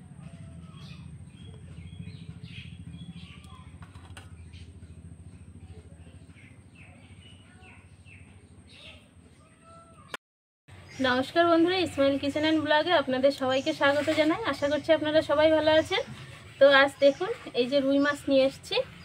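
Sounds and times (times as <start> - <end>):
steady low hum: 0.0 - 9.2
small birds chirping: 0.2 - 19.0.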